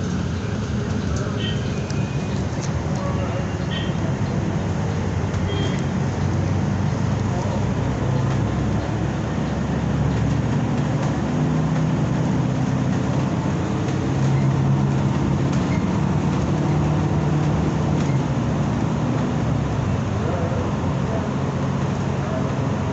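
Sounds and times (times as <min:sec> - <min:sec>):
bus engine drone: 0:00.0 - 0:22.9
road rumble: 0:00.0 - 0:22.9.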